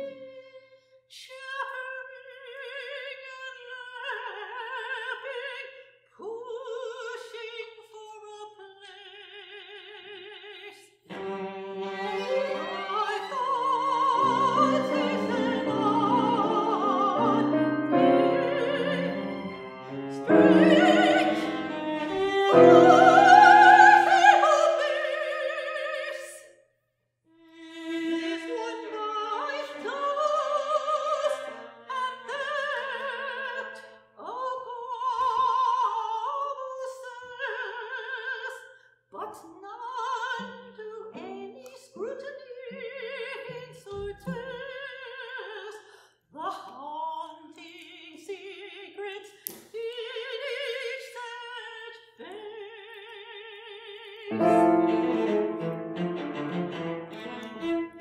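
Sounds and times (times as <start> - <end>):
violin: 0.0 - 0.8, 11.0 - 26.3, 27.4 - 33.8, 39.9 - 45.8, 54.0 - 58.0
soprano singing with vibrato: 0.0 - 26.5, 27.4 - 56.0
cello: 11.1 - 26.1, 27.4 - 33.9, 39.9 - 45.7, 54.3 - 58.0
piano: 13.4 - 25.2, 54.3 - 58.0.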